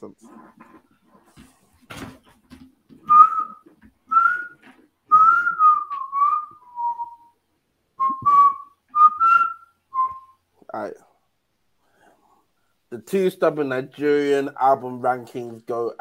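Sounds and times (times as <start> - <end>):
person whistling a tune: 3.1 - 7.4, 8.0 - 10.4.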